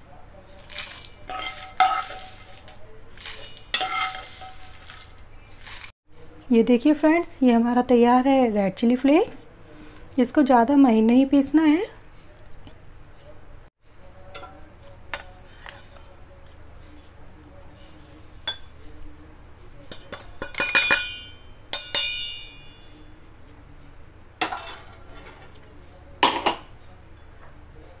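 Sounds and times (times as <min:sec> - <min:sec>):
steel jar clinking against glass: 0:00.7 - 0:05.8, 0:19.9 - 0:23.1.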